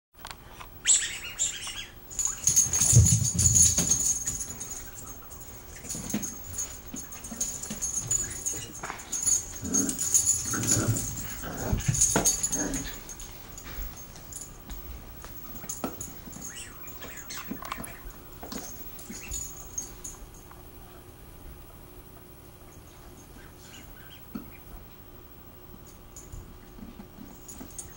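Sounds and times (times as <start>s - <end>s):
small dogs growling: 7.2s - 13.2s.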